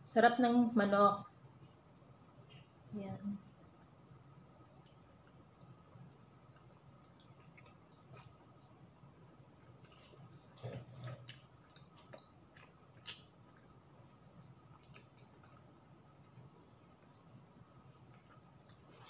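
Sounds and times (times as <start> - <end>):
mouth clicks and chewing: 4.8 - 8.8, 9.6 - 18.8.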